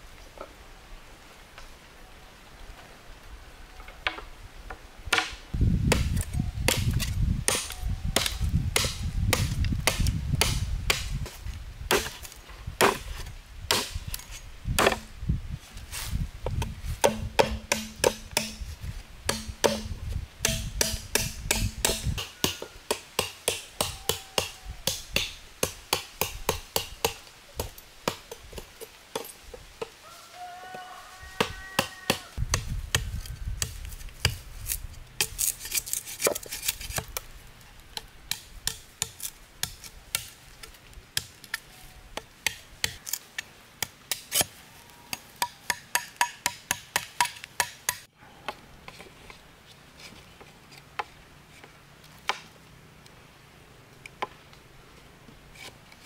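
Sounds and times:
hand tool chopping into wood: 0:05.1 - 0:15.1, 0:16.6 - 0:18.7, 0:19.3 - 0:28.2.

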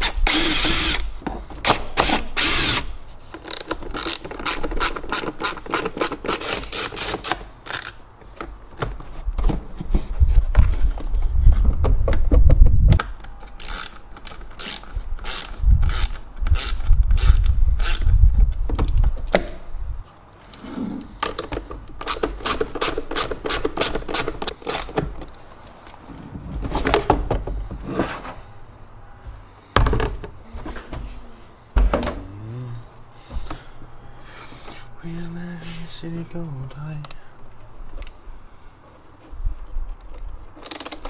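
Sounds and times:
hand ratchet clicking: 0:03.4 - 0:08.0, 0:13.5 - 0:18.1, 0:22.0 - 0:25.0.

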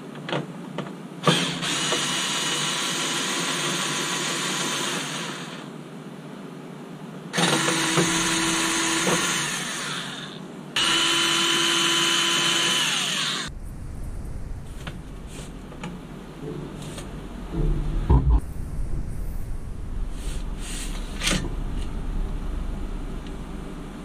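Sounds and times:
faint whine: 0:13.4 - 0:24.0.

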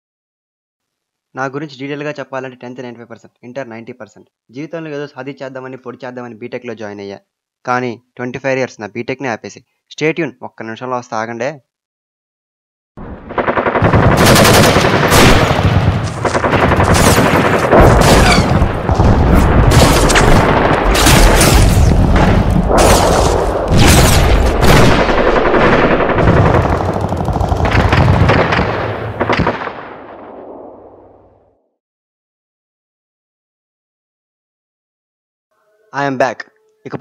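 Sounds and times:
rapid machine-gun-like firing: 0:13.3 - 0:29.8.

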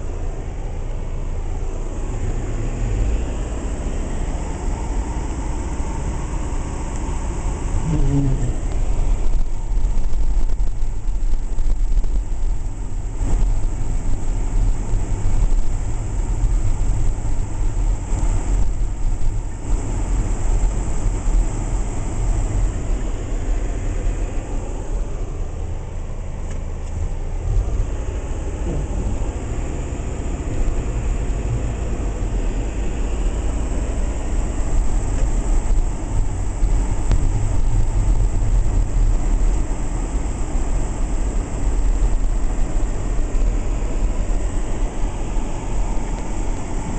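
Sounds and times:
car engine and road noise: 0:00.0 - 0:46.9.

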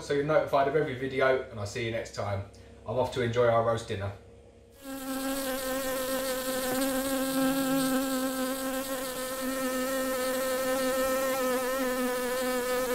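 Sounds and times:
bees buzzing: 0:04.8 - 0:12.9.

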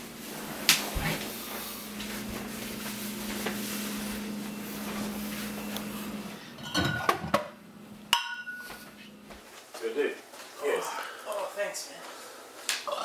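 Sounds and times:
steady low hum: 0:00.0 - 0:09.5
glass bottles clinking: 0:06.6 - 0:07.3, 0:08.1 - 0:08.7.

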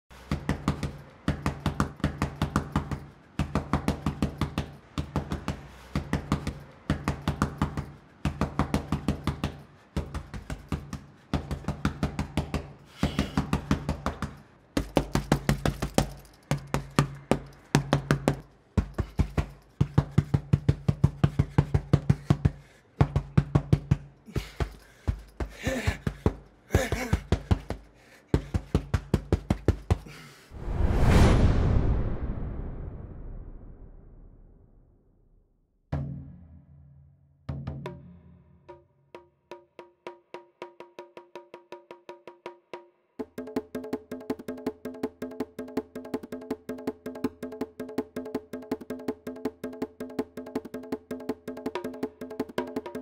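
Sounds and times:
fast percussive knocks: 0:00.3 - 0:30.1, 0:43.2 - 0:53.0.

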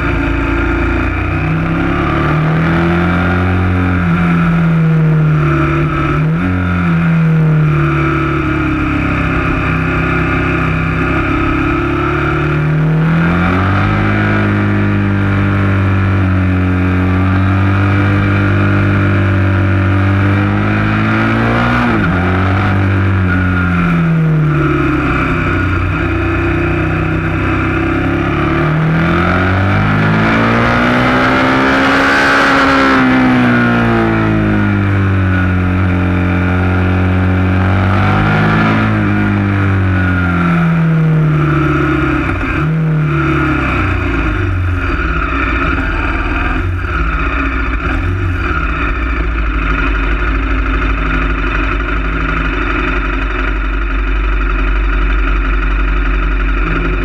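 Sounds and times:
motorcycle engine revving: 0:00.0 - 0:57.0
motorcycle engine idling: 0:39.8 - 0:57.0.

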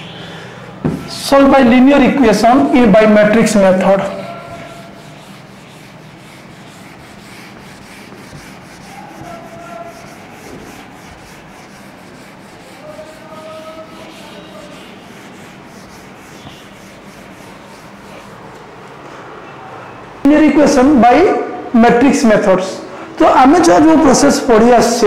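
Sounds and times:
eraser wiping whiteboard: 0:01.3 - 0:18.5.

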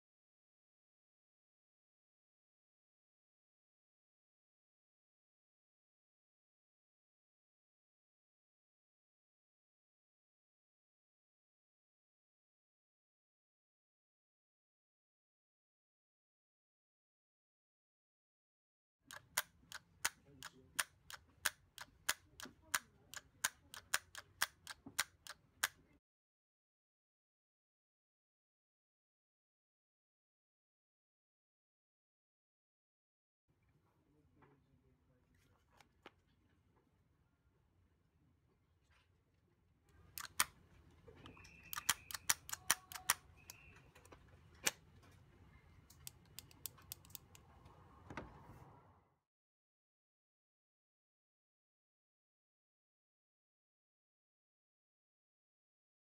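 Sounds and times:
sharp plastic clicks: 0:19.1 - 0:25.8, 0:40.1 - 0:40.6, 0:41.2 - 0:45.2, 0:45.9 - 0:47.5.

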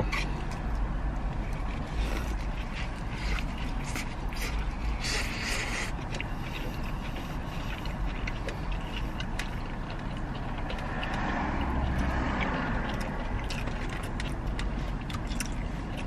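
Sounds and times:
motor vehicles rumbling: 0:00.0 - 0:16.0
chewing clicks: 0:00.1 - 0:16.0
vehicle passing by: 0:06.1 - 0:16.0.

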